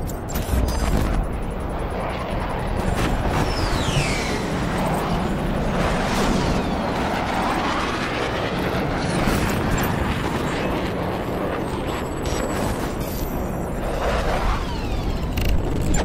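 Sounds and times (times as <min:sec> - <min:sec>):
mechanical whirring and clicking: 0:00.0 - 0:07.3, 0:11.9 - 0:16.0
constant rumble: 0:00.0 - 0:16.0.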